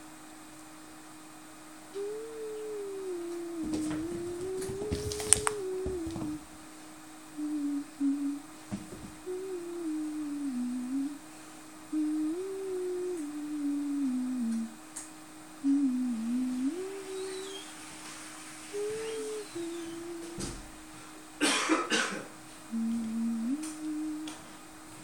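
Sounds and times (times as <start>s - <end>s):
faint steady tone: 1.9s - 6.4s, 7.3s - 14.8s, 15.6s - 20.7s, 22.7s - 24.6s
person humming: 1.9s - 6.5s, 7.3s - 14.9s, 15.6s - 17.8s, 18.6s - 20.8s, 22.7s - 25.0s.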